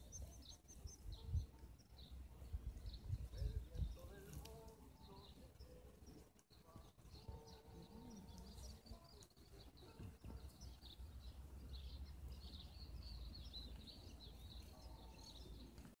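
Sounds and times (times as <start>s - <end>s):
distant birds chirping: 0.0s - 16.0s.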